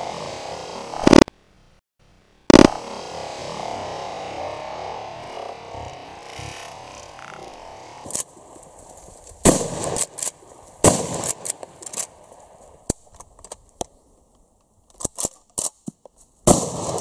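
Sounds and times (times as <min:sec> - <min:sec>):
shotgun shots: 0:02.5 - 0:02.8, 0:09.4 - 0:12.1, 0:16.5 - 0:17.0.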